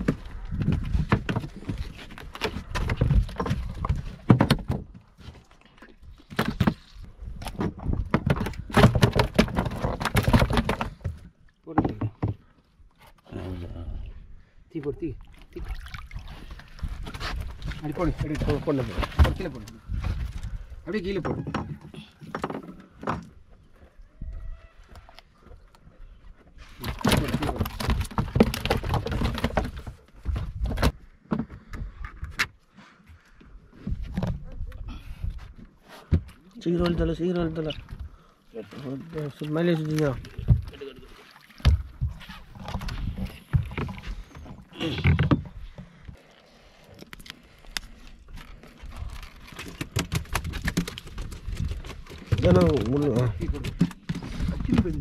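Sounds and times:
fish flapping in metal bucket: 26.8 - 29.9, 49.5 - 55.0.

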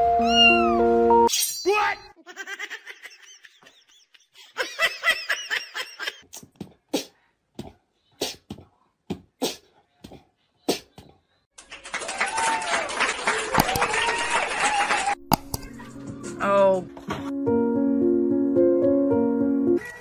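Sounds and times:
person laughing: 2.2 - 6.2.

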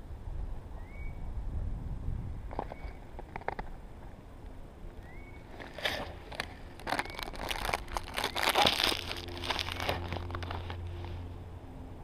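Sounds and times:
footsteps crunching in snow: 5.5 - 11.3.

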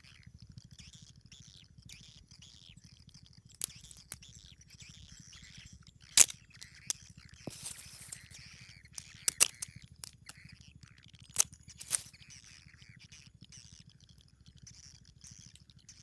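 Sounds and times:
birds chirping: 0.8 - 13.8
crab shells clicking and cracking: 3.5 - 4.3, 6.1 - 10.6, 11.3 - 12.2.

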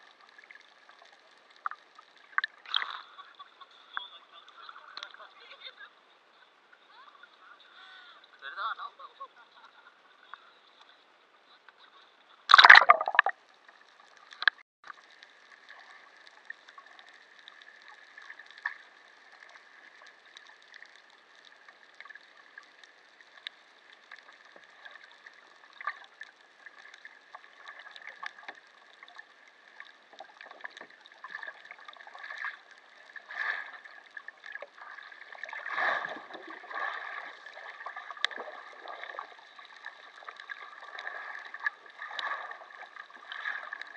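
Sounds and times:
underwater crackling and clicks: 0.0 - 5.3, 12.5 - 43.9
loud splash into water: 12.5 - 13.3
gurgling bubbles: 12.5 - 13.4, 30.1 - 43.9.

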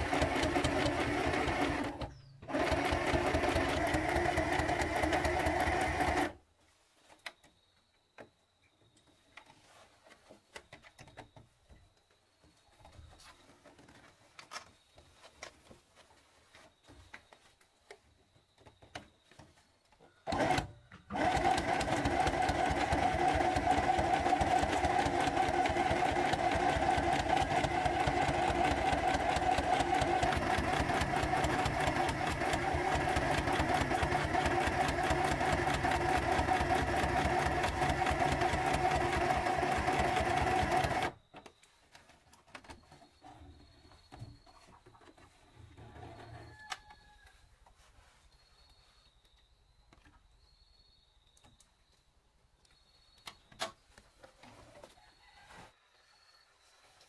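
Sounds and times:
sewing machine stitching: 0.0 - 6.4, 20.3 - 41.2.

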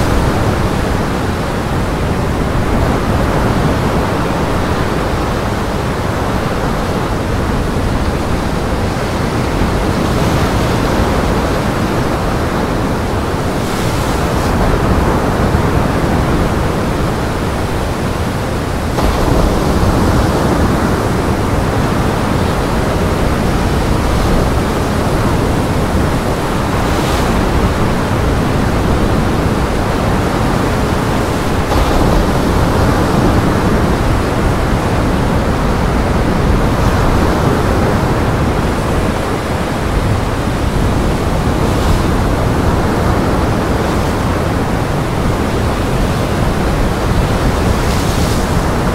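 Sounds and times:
gale-force wind roaring: 0.0 - 48.9
surf breaking against rocks: 18.6 - 48.9.

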